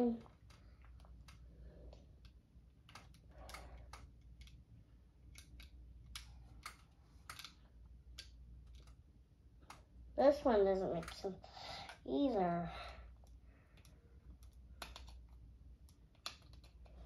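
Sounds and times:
plastic toy bricks clicking: 2.2 - 4.6, 5.3 - 9.0, 10.8 - 12.1, 13.2 - 17.0.

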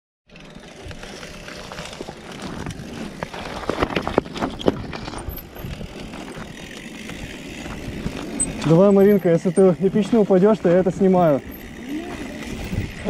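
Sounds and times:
bicycle tyres on dirt trail: 0.3 - 13.0
bike rattling: 0.3 - 13.0
wind noise: 3.7 - 6.2, 12.1 - 13.0.

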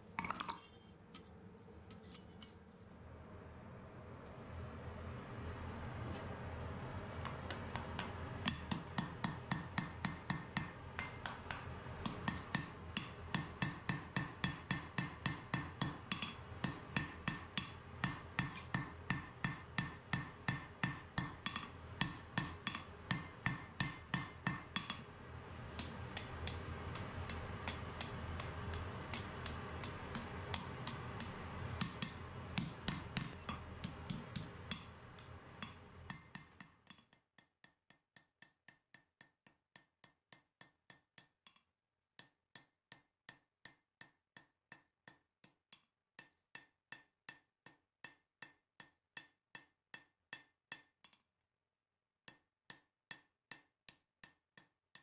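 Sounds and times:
steady background noise: 0.0 - 36.6
hammer striking hot metal on anvil: 7.3 - 25.1, 25.7 - 36.8.

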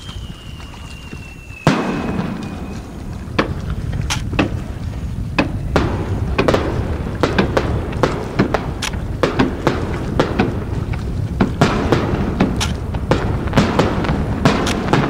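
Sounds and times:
firework whistle falling in pitch: 0.0 - 3.2
fireworks bangs and pops: 0.0 - 15.0
low rumble: 0.0 - 15.0.

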